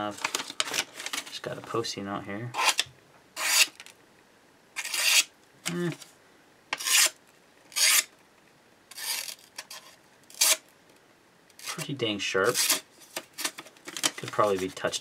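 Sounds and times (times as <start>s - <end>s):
knife blade slicing paper: 2.6s - 2.8s, 3.4s - 3.8s, 4.8s - 5.8s, 6.8s - 8.1s, 8.9s - 10.6s, 11.6s - 11.9s, 12.5s - 13.6s.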